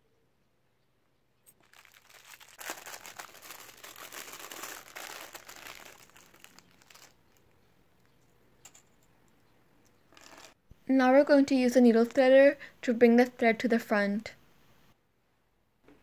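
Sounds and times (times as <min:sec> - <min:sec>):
plastic bag crinkling: 0:01.5 - 0:07.6, 0:10.1 - 0:10.6.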